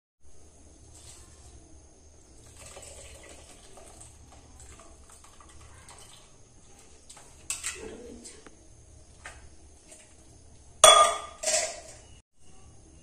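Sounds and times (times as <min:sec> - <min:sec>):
water sloshing in pot: 0:00.6 - 0:08.4, 0:09.0 - 0:12.2
skimmer scraping and tapping: 0:00.8 - 0:12.2
skimmer clinking against pot: 0:10.8 - 0:12.2.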